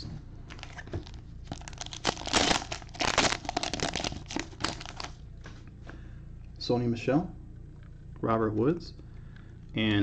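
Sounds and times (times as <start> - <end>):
cellophane wrapper crinkling and tearing: 0.5 - 5.2.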